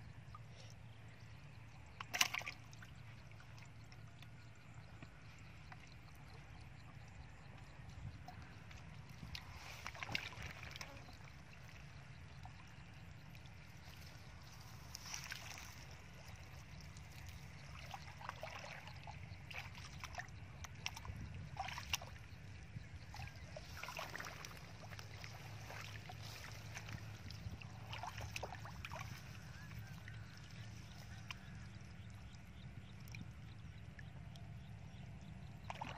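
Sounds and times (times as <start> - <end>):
low steady rumble: 0.0 - 35.9
feet splashing in shallow water: 2.0 - 3.2, 8.4 - 12.9, 13.5 - 32.6, 35.6 - 35.9.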